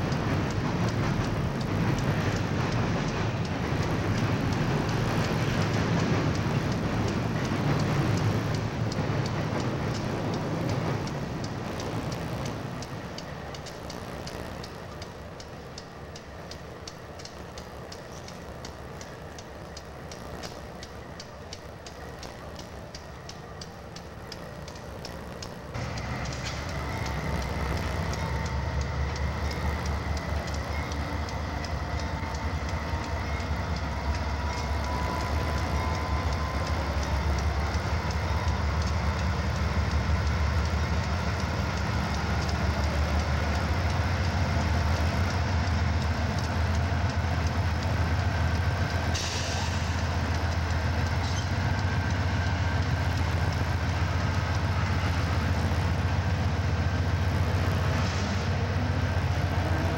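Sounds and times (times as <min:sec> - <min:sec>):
diesel locomotive engines droning: 0:00.0 - 0:59.9
train wheels clicking over rails: 0:00.0 - 0:59.9.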